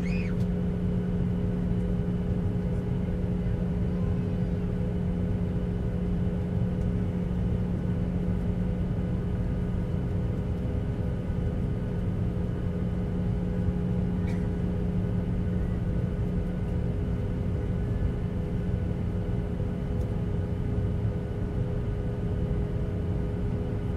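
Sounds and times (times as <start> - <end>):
jet engines rumbling hum: 0.0 - 23.9.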